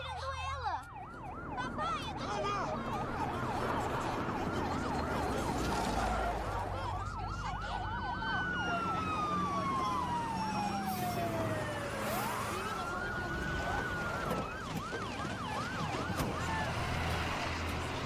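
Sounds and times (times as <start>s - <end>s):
siren yelping: 0.0s - 17.9s
siren wailing: 0.0s - 18.0s.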